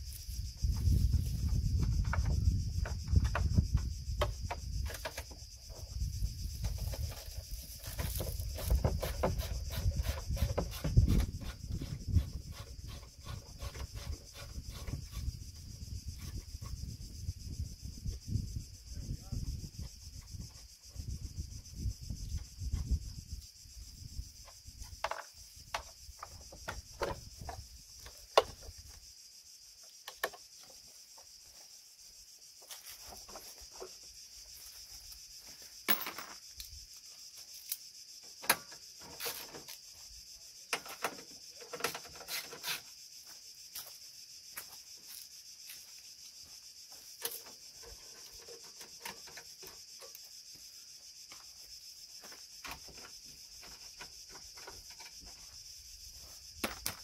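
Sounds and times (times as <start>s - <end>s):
high insect drone: 0.0s - 57.0s.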